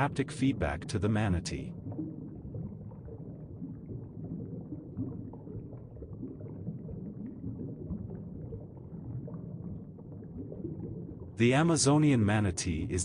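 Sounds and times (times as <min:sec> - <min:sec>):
muffled underwater rumble: 0:00.0 - 0:13.0.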